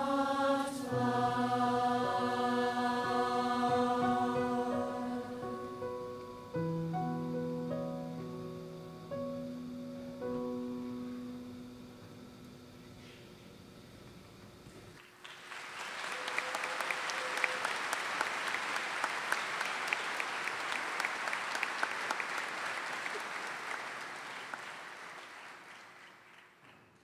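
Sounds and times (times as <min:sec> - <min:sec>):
faint music: 0:00.0 - 0:15.0
audience applause: 0:15.0 - 0:27.0.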